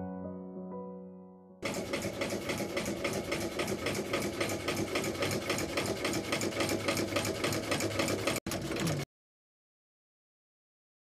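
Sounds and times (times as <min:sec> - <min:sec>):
sewing machine stitching: 0:01.6 - 0:09.1.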